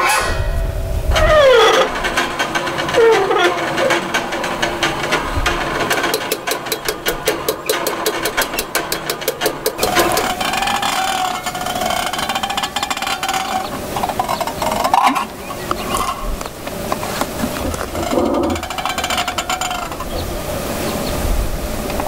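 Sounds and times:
fast clicking rattle: 0:01.2 - 0:21.2
wavering steady drone: 0:09.8 - 0:22.0.

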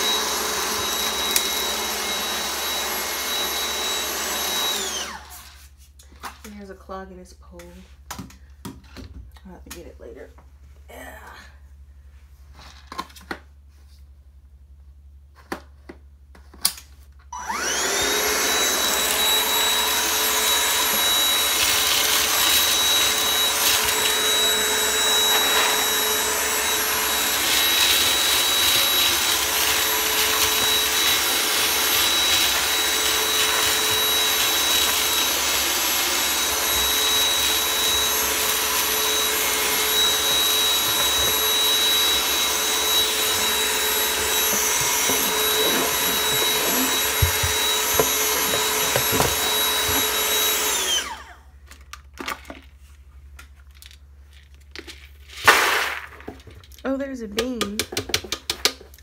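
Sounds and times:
vacuum cleaner motor whining: 0:00.0 - 0:05.6, 0:17.3 - 0:51.5.

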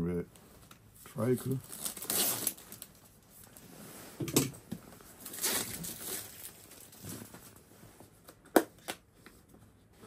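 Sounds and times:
packaging rustling and crinkling: 0:01.3 - 0:03.7, 0:04.9 - 0:07.7.

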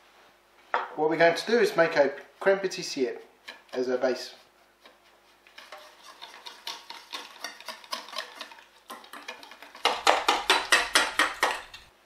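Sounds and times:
whisk clinking against metal bowl: 0:04.8 - 0:11.9.

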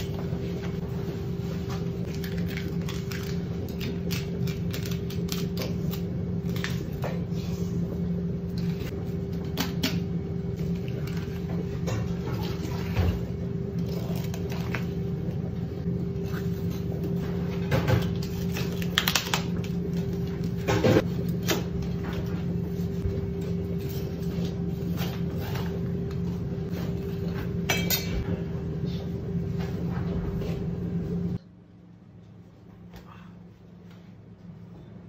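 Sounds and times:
steady machine hum: 0:00.0 - 0:35.0.

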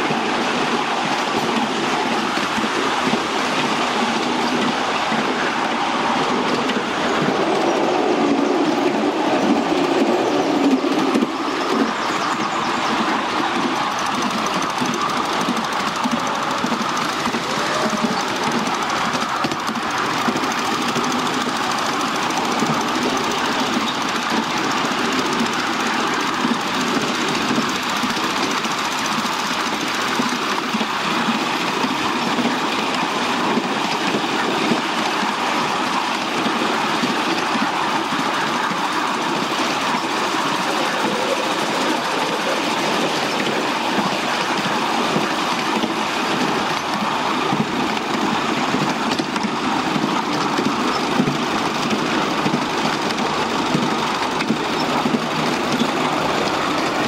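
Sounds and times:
miniature train wheels rattling on rails: 0:00.0 - 0:57.0.

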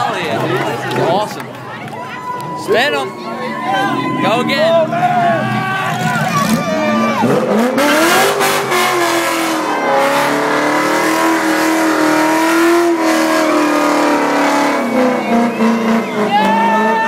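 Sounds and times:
tyres spinning on asphalt: 0:00.0 - 0:17.0
car engine revving: 0:02.6 - 0:17.0.

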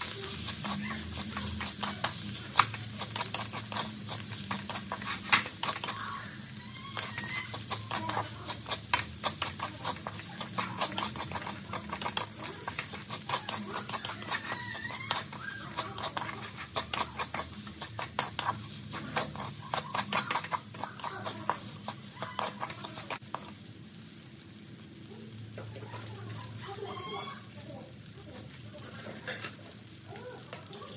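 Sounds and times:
spatula scraping metal pan: 0:00.0 - 0:23.5.

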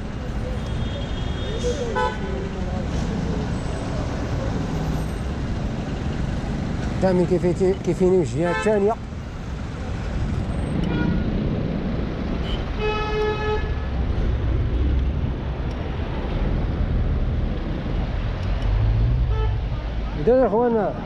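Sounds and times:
road traffic noise: 0:00.0 - 0:21.0.

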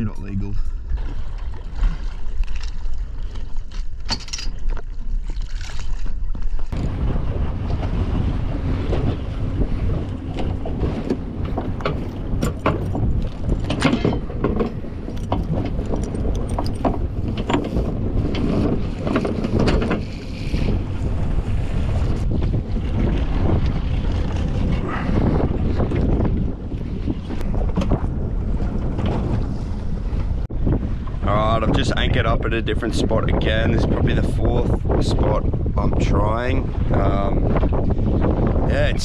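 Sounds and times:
water slapping boat hull: 0:00.0 - 0:39.0
wind buffeting microphone: 0:06.0 - 0:39.0.

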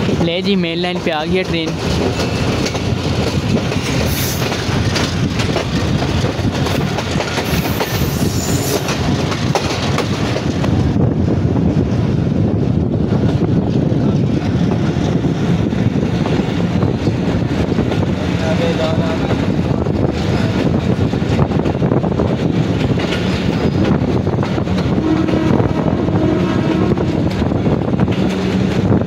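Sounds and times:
train rumbling: 0:00.0 - 0:29.0
wheels clicking over rail joints: 0:00.9 - 0:10.8
high wheel squeal: 0:07.5 - 0:08.8.

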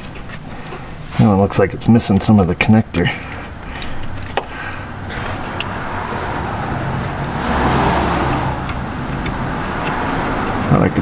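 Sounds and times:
vehicle engine humming: 0:02.8 - 0:11.0.

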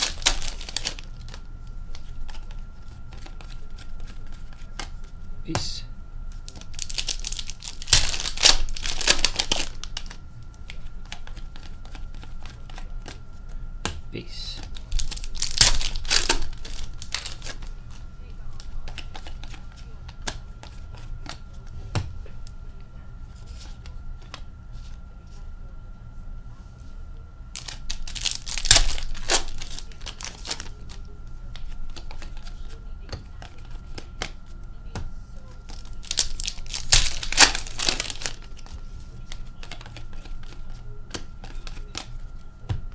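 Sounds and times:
wrapper tearing and crinkling: 0:00.0 - 0:01.4, 0:06.5 - 0:10.1, 0:14.8 - 0:17.6, 0:27.6 - 0:30.9, 0:35.7 - 0:38.7.

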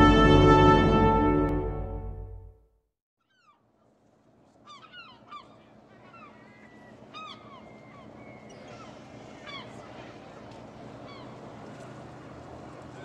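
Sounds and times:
intro music: 0:00.0 - 0:02.6
faint harbour hiss: 0:04.0 - 0:13.0
gulls calling: 0:04.7 - 0:13.0.

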